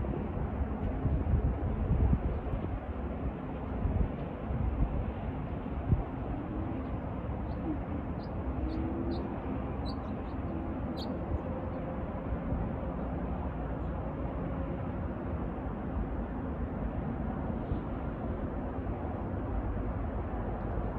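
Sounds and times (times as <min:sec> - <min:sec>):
wind rumble: 0:00.0 - 0:12.9
distant traffic: 0:00.0 - 0:20.9.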